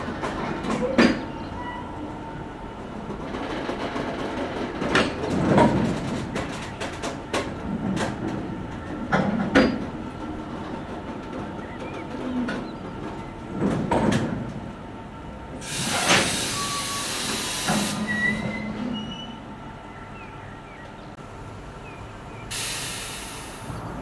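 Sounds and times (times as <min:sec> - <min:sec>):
train wagons knocking: 0:00.0 - 0:01.8, 0:02.8 - 0:14.8
air brakes hissing: 0:15.6 - 0:19.2, 0:22.5 - 0:23.9.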